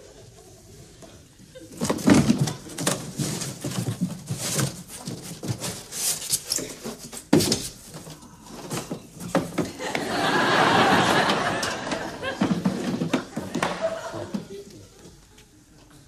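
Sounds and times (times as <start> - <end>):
polystyrene squeaking and scraping: 1.7 - 8.0.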